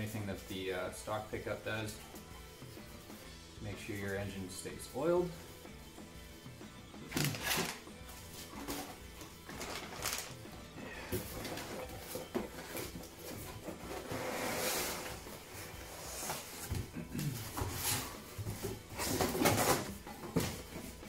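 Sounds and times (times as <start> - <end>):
cardboard scraping and rustling: 11.2 - 20.8.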